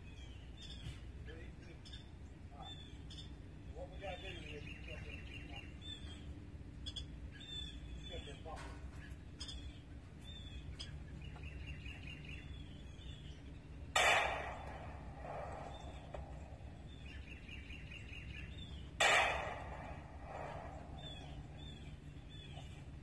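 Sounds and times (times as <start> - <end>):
faint birds chirping: 0.0 - 23.0
pistol shots echoing: 14.0 - 17.3, 18.9 - 21.8.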